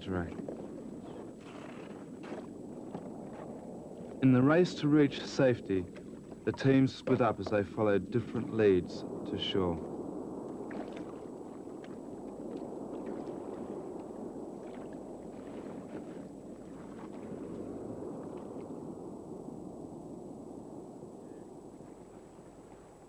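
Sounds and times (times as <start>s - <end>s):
kayak paddles splashing: 0.0s - 8.5s, 10.6s - 18.9s
moving water wash: 0.0s - 20.1s.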